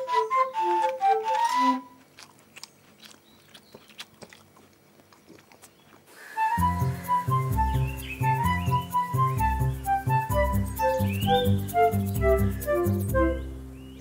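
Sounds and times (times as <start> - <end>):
flute melody: 0.0 - 2.0, 6.4 - 14.0
chewing: 0.7 - 6.2.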